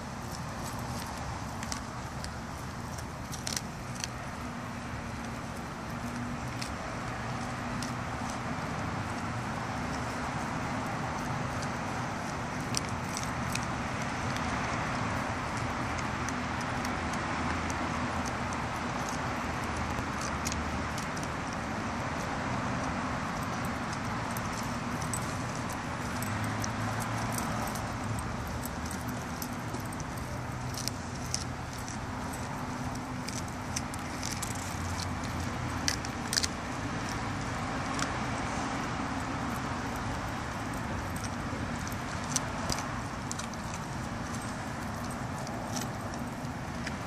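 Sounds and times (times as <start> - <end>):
road traffic hum: 0.0 - 47.0
dog collar chain jingling: 23.2 - 38.0, 39.1 - 47.0.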